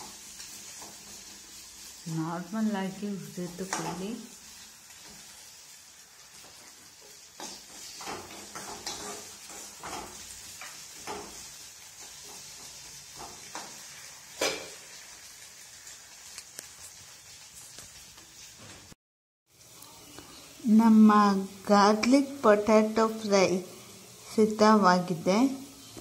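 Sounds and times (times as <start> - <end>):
potatoes sizzling in a pan: 0.0 - 26.0
spatula scraping a pan: 6.3 - 14.9.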